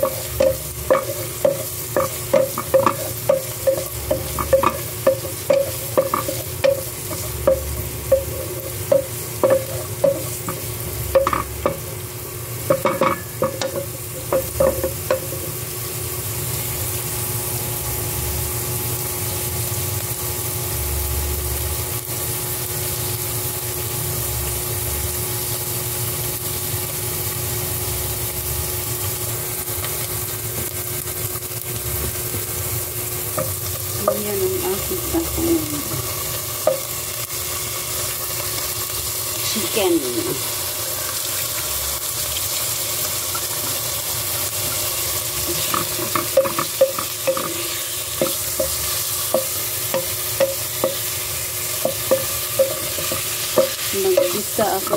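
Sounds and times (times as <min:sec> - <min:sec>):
onions sizzling in oil: 0:00.0 - 0:54.9.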